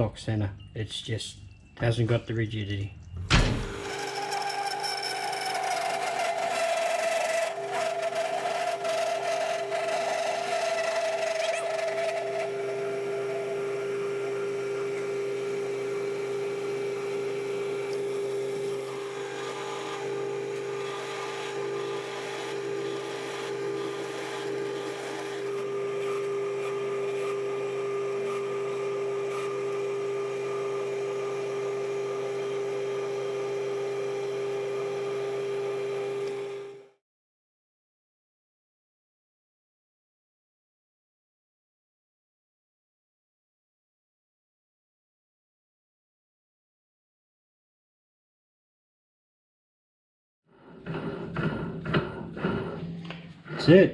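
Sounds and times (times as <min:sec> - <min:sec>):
metal lathe humming: 0:03.5 - 0:37.0, 0:50.5 - 0:53.9
wavering squeal of cutting chatter: 0:08.1 - 0:12.4.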